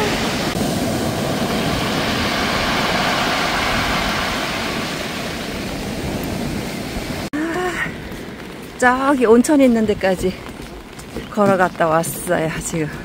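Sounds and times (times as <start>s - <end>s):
waves breaking on pebble beach: 0.0s - 7.3s.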